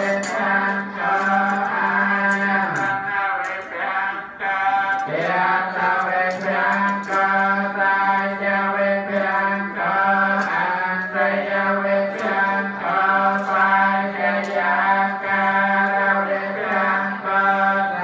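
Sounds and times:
voices chanting: 0:00.0 - 0:18.0.

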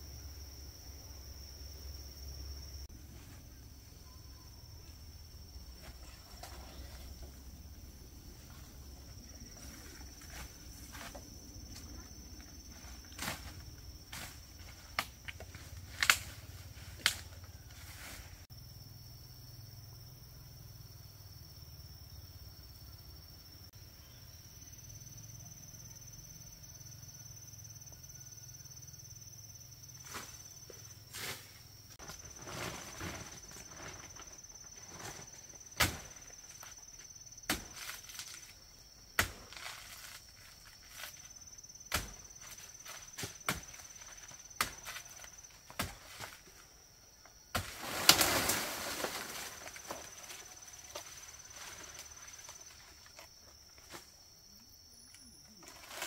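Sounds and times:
high insect trill: 0:00.0 - 0:56.0.

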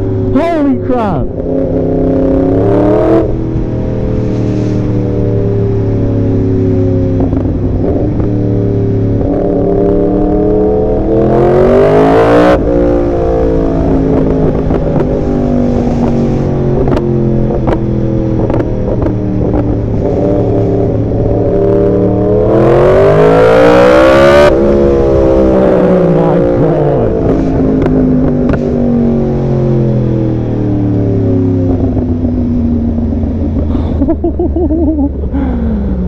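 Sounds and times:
motorcycle engine accelerating: 0:01.1 - 0:36.0
exhaust pops: 0:14.1 - 0:20.5.

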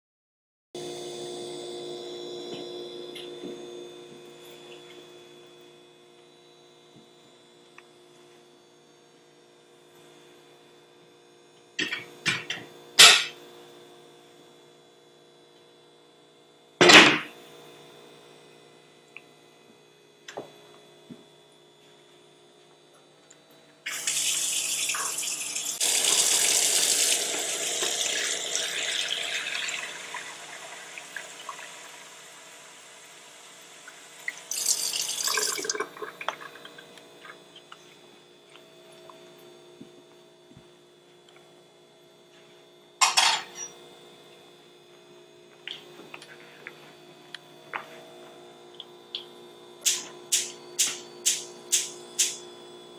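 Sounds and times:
metal pans clanking: 0:11.8 - 0:13.4, 0:43.0 - 0:43.7
faucet water filling saucepan: 0:23.9 - 0:37.4.

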